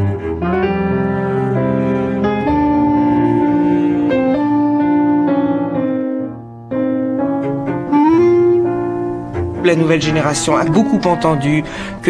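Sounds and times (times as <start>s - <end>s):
piano melody: 0.0s - 12.0s.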